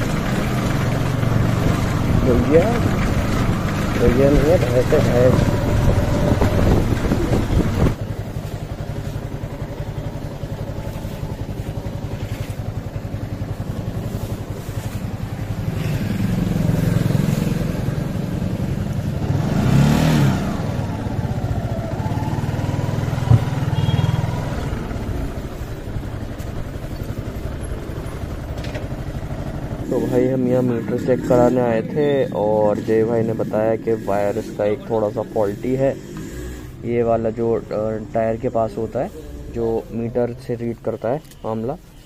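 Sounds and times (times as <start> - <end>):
motorcycle engine running slowly: 0.0 - 39.2
sharp knock: 23.2 - 23.7.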